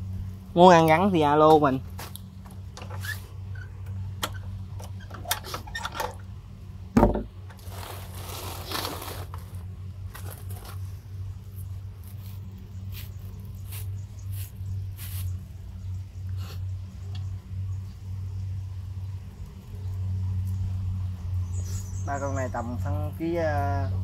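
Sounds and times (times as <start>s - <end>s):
steady low hum: 0.0s - 24.0s
loud wooden thump: 7.0s - 7.3s
rustling of sacks and net bag: 7.6s - 12.4s.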